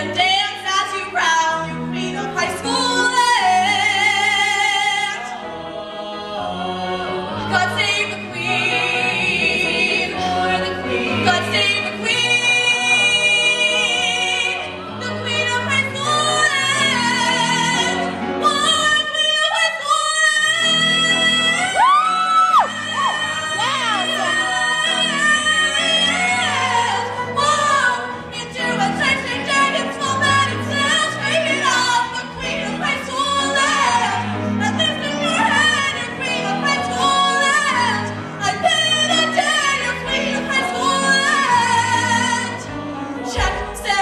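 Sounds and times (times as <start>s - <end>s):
piano accompaniment: 0.0s - 44.0s
woman singing: 9.7s - 42.6s.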